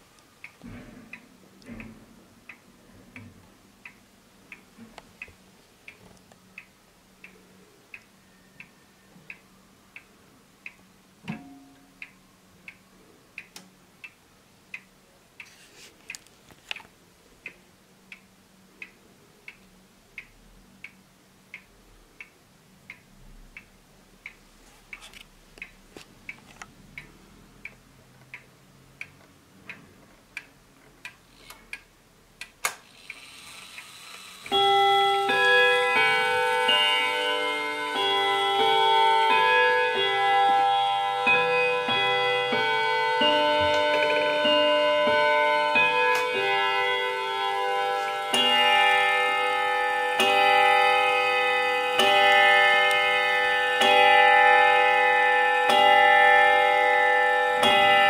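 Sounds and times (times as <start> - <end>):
wall clock ticking: 0.0 - 58.0
clock hand clicking: 17.4 - 56.8.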